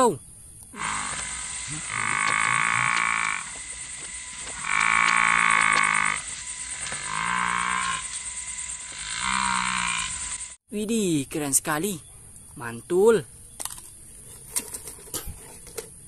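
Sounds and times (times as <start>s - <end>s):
buffalo calling: 0.7s - 8.2s, 8.8s - 10.4s.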